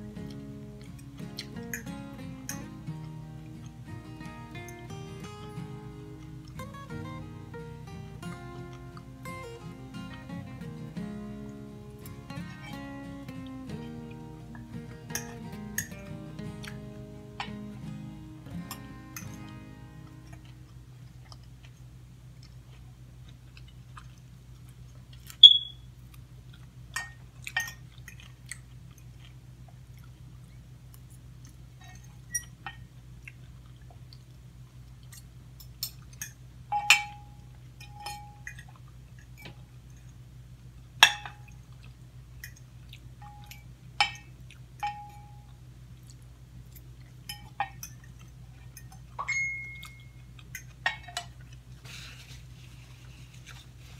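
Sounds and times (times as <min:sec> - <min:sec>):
quiet chewing: 0:00.0 - 0:02.0, 0:07.4 - 0:10.3, 0:13.2 - 0:36.4, 0:38.4 - 0:40.8, 0:41.5 - 0:44.8, 0:45.4 - 0:49.2, 0:49.8 - 0:53.9
steady low hum: 0:00.0 - 0:53.9
fork and spoon clinking on a bowl: 0:15.0 - 0:16.8, 0:18.6 - 0:19.5, 0:27.0 - 0:28.2, 0:35.1 - 0:38.7, 0:47.3 - 0:51.4.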